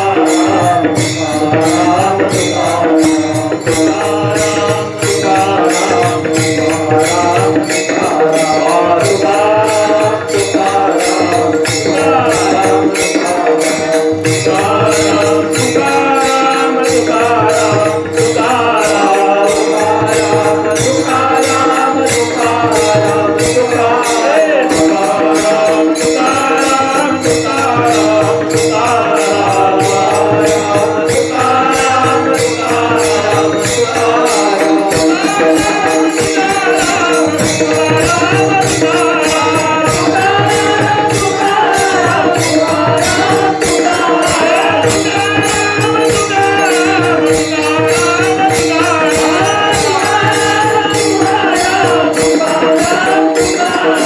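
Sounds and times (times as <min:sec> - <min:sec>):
hand cymbals jingling: 0:00.0 - 0:54.0
steady held drone: 0:00.0 - 0:54.0
voices singing chanted refrain: 0:00.0 - 0:54.0.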